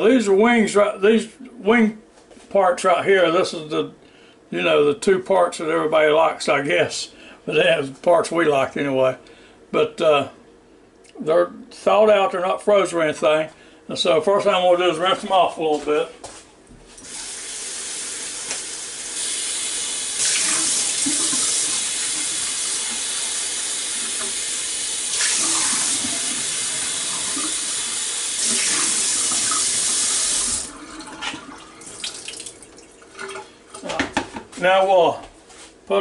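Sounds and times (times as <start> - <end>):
faucet running into a bowl: 17.0 - 33.4.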